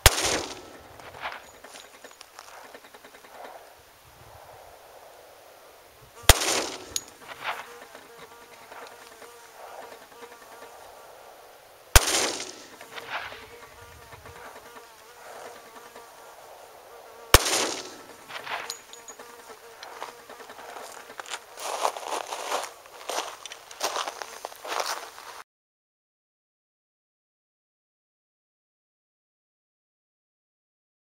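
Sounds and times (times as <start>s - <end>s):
pistol shots with echo: 0.0s - 1.4s, 6.2s - 7.6s, 11.9s - 13.3s, 17.3s - 18.7s.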